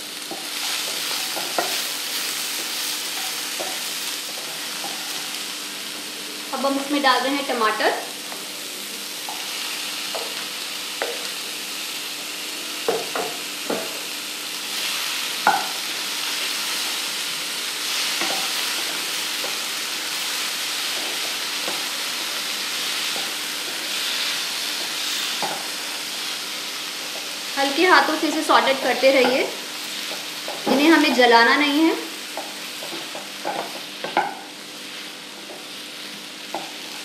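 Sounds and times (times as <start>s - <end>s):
vegetables sizzling in oil: 0.0s - 37.0s
spatula scraping and knocking pan: 0.3s - 2.0s, 32.4s - 34.5s.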